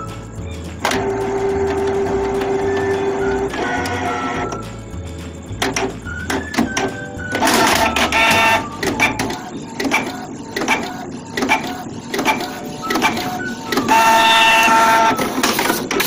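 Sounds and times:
printer motors whining: 0.9s - 4.6s, 6.3s - 16.0s
printer sharp clicks: 6.8s - 16.0s.

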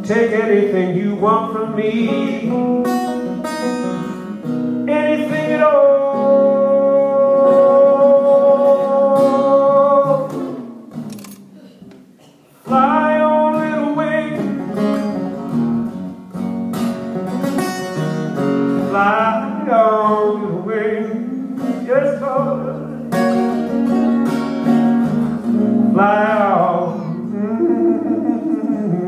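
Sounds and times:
person singing without words: 0.0s - 3.7s, 4.8s - 10.8s, 12.6s - 15.0s, 18.8s - 23.2s, 25.9s - 29.0s
acoustic guitar strummed: 0.0s - 11.6s, 12.2s - 29.0s.

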